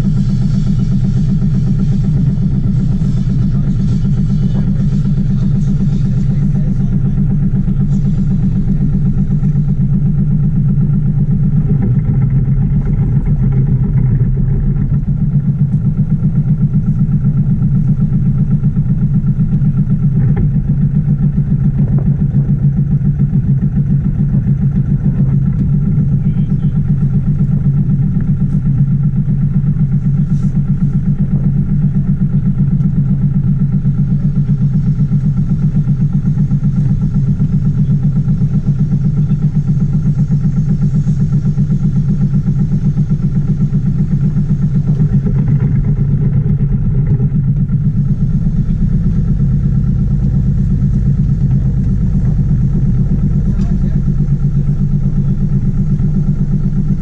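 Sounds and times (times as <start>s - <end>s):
boat engine droning: 0.0s - 57.0s.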